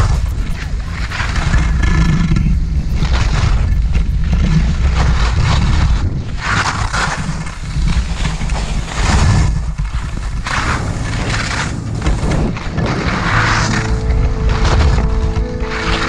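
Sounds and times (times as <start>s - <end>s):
wind rumbling on microphone: 0.0s - 16.0s
edges scraping through snow: 4.6s - 16.0s.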